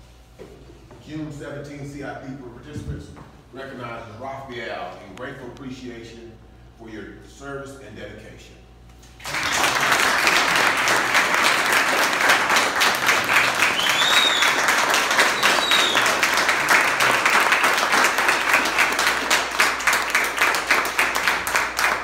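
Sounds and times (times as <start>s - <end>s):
audience applauding: 9.2s - 22.0s.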